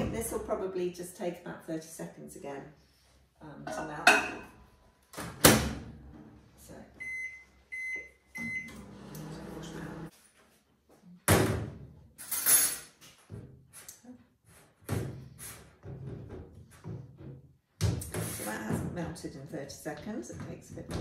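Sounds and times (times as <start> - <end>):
microwave humming: 8.4 - 10.1.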